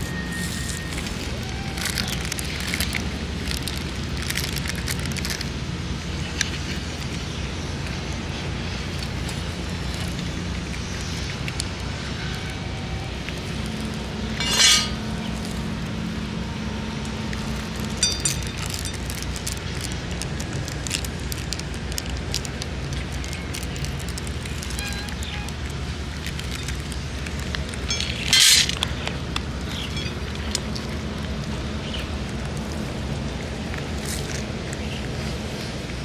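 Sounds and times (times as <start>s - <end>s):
cat crunching dry kibble: 0.0s - 36.0s
steady low rumble: 0.0s - 36.0s
kibble clinking on metal bowl: 14.4s - 15.1s, 17.9s - 19.4s.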